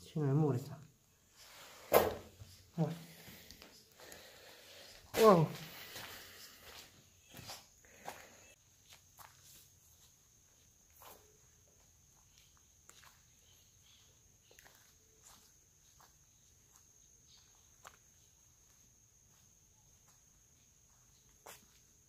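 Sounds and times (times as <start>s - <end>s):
footsteps on dry leaves: 4.1s - 10.1s.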